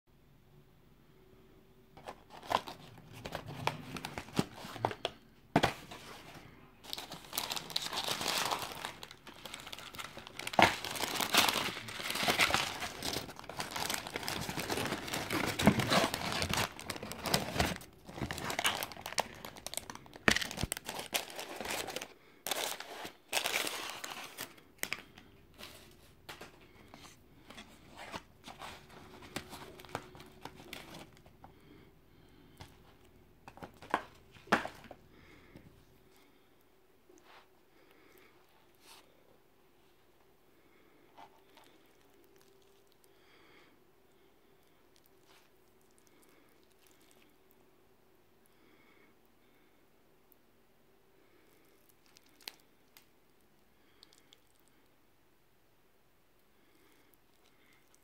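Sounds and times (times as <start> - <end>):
paper wrapper crinkling: 2.0 - 31.3.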